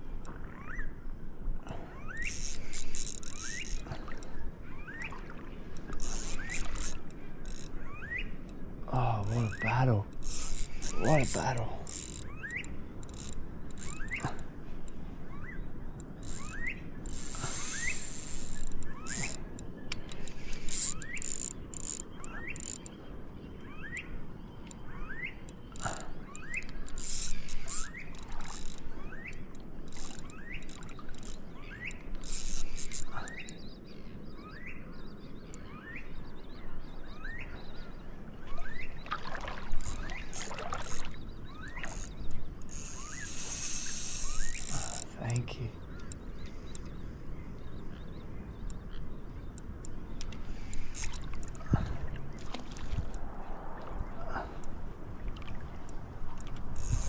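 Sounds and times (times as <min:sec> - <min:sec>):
fishing reel squeaking: 0:02.0 - 0:05.1, 0:05.8 - 0:08.6, 0:09.2 - 0:14.4, 0:15.9 - 0:23.0, 0:24.7 - 0:33.6, 0:39.8 - 0:45.2, 0:50.6 - 0:51.6, 0:56.7 - 0:57.0.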